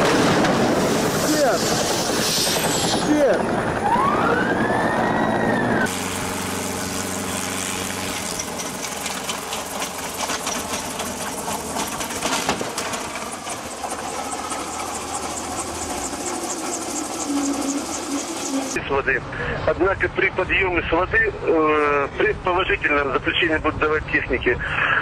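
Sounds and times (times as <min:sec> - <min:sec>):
helicopter engine and rotor clatter: 0:00.0 - 0:18.8.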